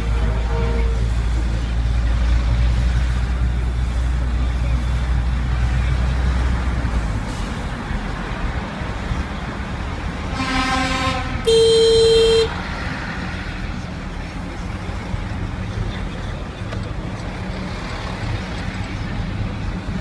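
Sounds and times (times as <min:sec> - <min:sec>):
low vehicle horn: 0:00.0 - 0:01.4, 0:10.3 - 0:12.6
traffic rumble: 0:00.0 - 0:20.0
sharp vehicle horn: 0:10.3 - 0:12.6.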